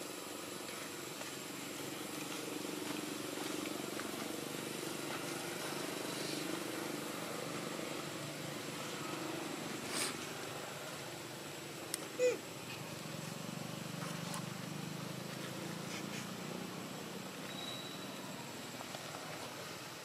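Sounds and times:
distant engine hum: 0.0 - 20.0
thin high whine: 17.2 - 18.7.

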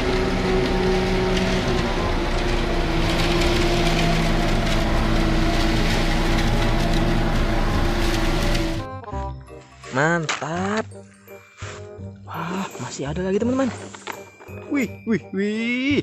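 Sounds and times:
diesel truck engine running: 0.0 - 9.5.

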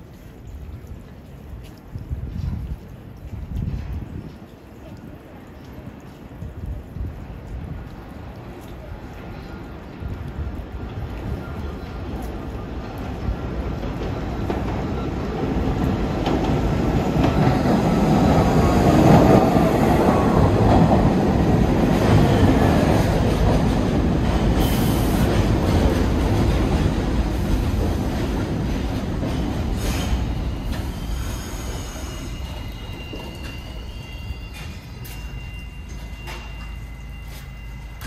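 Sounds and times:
subway train wheels rumbling: 5.8 - 38.0
faint high whine: 30.5 - 38.0.

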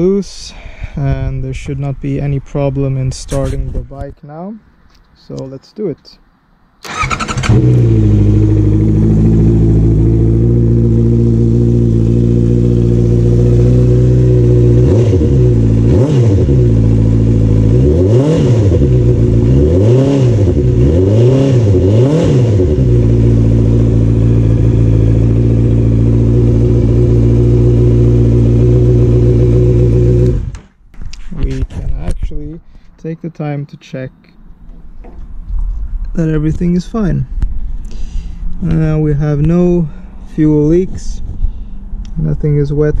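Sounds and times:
motorcycle engine revving: 6.8 - 30.8
motorcycle engine idling: 6.9 - 14.8, 22.9 - 30.6.

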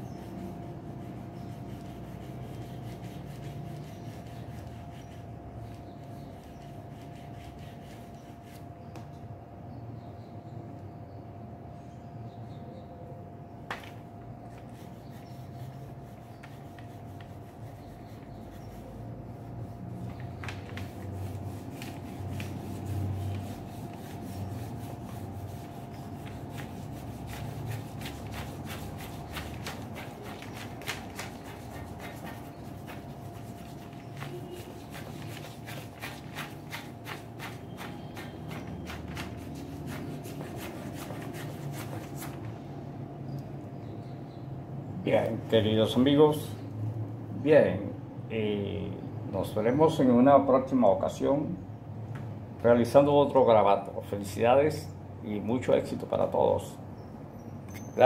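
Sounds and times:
pencil scratching on paper: 0.0 - 8.6, 14.6 - 42.4.

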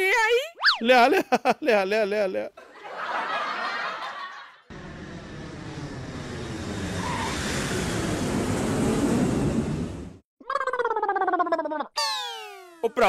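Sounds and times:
airliner engine rushing: 4.7 - 10.2.

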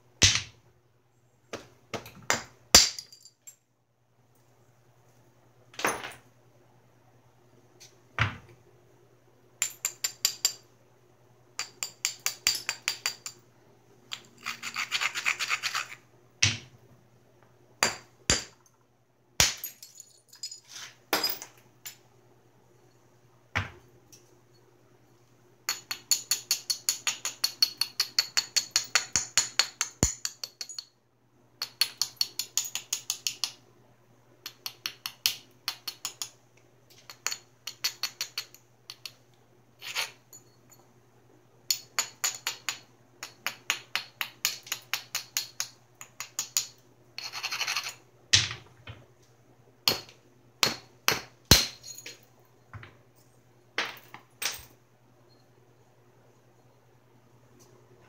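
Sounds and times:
abrader rubbing stone: 14.4 - 16.0, 39.8 - 40.2, 47.2 - 48.0.

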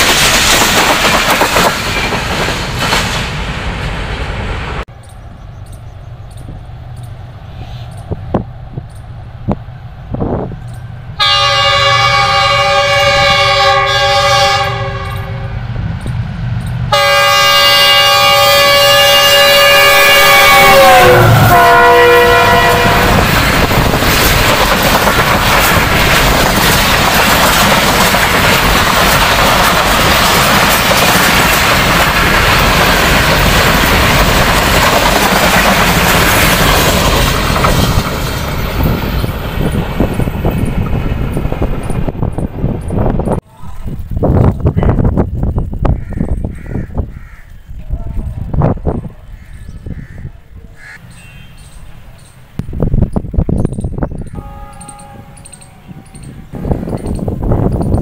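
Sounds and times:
low train rumble: 0.0 - 58.0
locomotive horn blasts: 11.2 - 15.6, 16.9 - 23.3, 51.1 - 51.8, 54.3 - 56.8.

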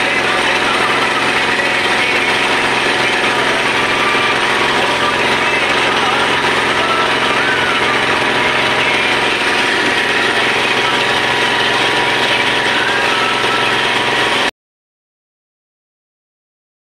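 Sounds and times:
motorboat engine running: 0.0 - 14.5.

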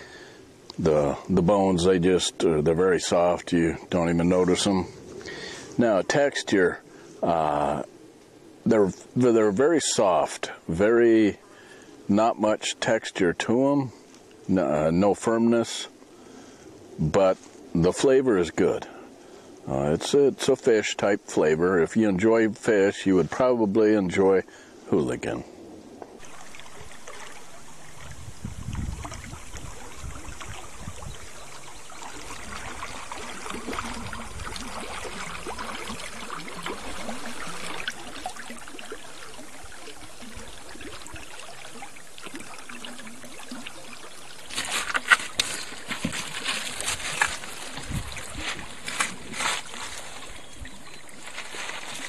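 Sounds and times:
water lapping against canoe: 24.4 - 52.0
sharp splashes and knocks: 26.1 - 31.0, 44.4 - 50.4.

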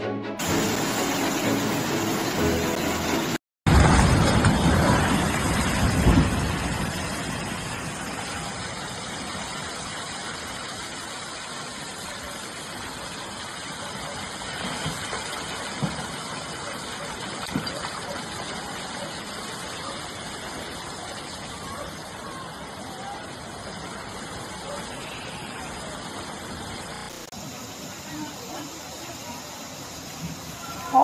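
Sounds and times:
floodwater rushing: 0.3 - 31.0
bridge crashing into water: 3.7 - 8.0.

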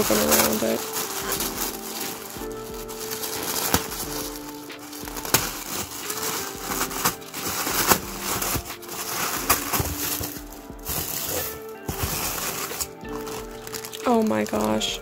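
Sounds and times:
soft background music: 0.0 - 15.0
tissue paper crinkling: 0.0 - 15.0.

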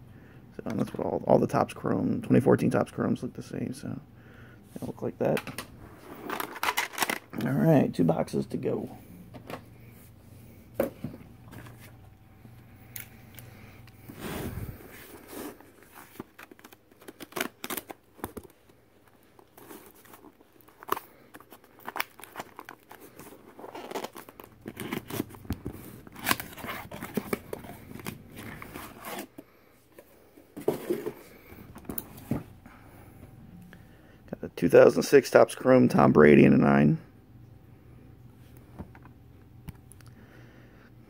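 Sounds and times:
cardboard rustling and scraping: 14.0 - 18.6, 19.2 - 32.6
packing tape tearing: 15.2 - 18.5, 19.4 - 25.4, 26.0 - 29.3.

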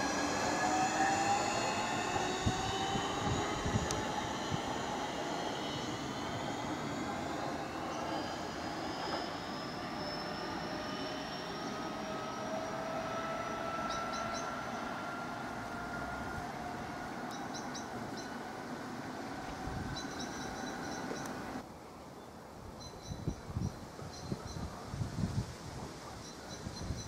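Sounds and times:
train motors whining: 0.0 - 21.6
train running rumble: 0.0 - 21.6.

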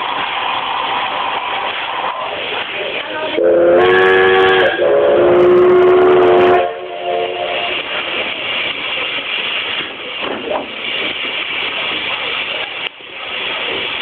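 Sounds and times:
steam locomotive whistle blasts: 3.4 - 7.9.

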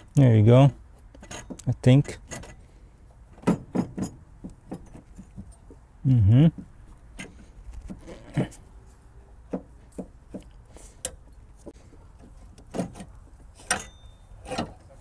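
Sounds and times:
metal knocking against brackets: 3.3 - 5.8, 9.5 - 10.5.

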